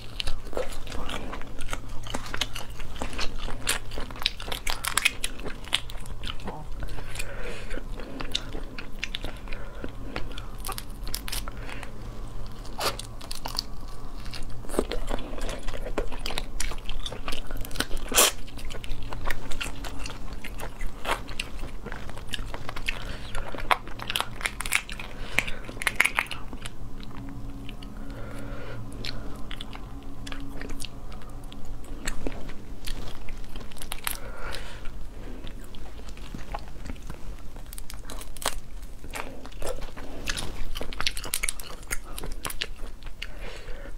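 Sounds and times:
shells cracking and crunching: 0.0 - 27.8, 36.0 - 43.2
close-up chewing: 0.0 - 43.9.

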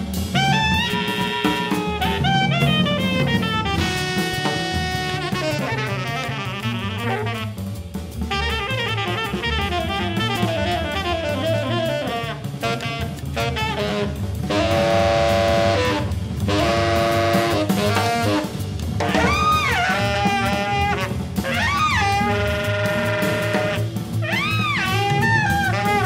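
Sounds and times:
bass: 0.0 - 26.0
drum kit with hi-hat: 0.0 - 26.0
tenor saxophone: 0.0 - 26.0.

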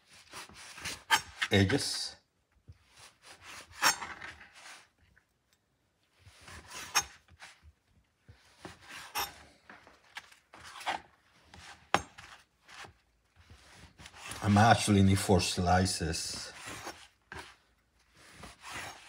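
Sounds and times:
knife rasping through bread crust: 2.9 - 4.9, 6.2 - 7.7, 16.5 - 19.0.

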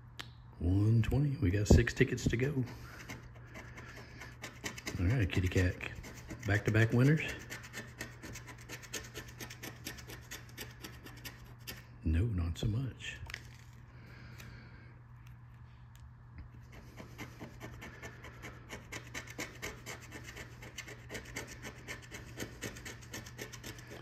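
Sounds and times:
coin scratching lottery ticket: 2.8 - 11.9, 16.6 - 24.0.

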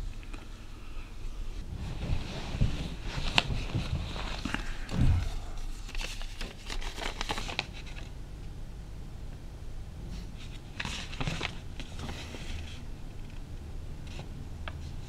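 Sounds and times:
paper and bedclothes rustling: 0.0 - 8.2, 10.2 - 12.9
low room hum: 0.0 - 15.0
soft low thump: 4.9 - 5.6.

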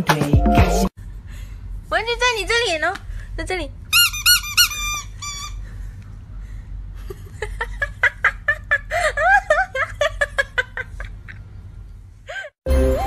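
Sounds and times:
woman laughing: 7.0 - 11.5.

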